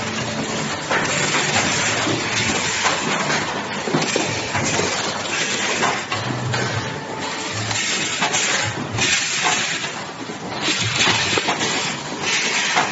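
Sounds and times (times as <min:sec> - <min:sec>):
factory floor noise: 0:00.0 - 0:12.9
pneumatic press knocking and clattering: 0:07.6 - 0:12.9.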